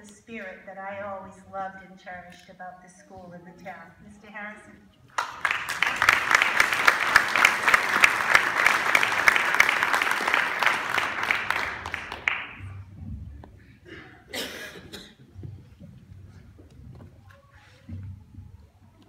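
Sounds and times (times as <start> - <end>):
audience applauding: 5.1 - 12.8.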